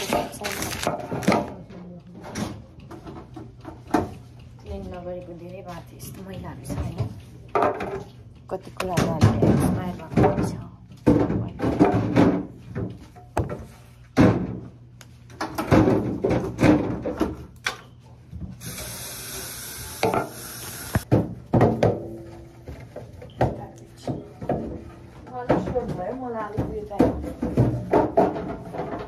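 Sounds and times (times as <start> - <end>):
knocks and rattles of jars: 8.8 - 13.6, 21.1 - 29.0.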